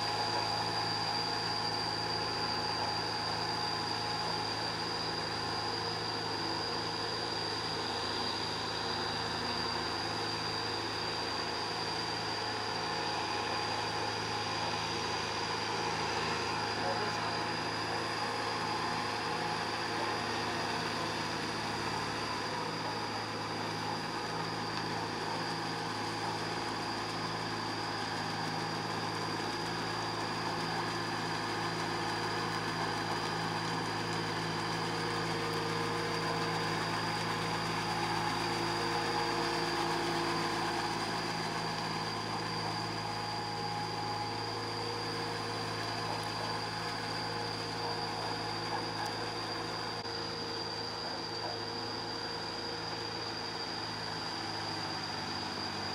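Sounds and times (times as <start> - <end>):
tractor diesel engine running: 11.2 - 51.9.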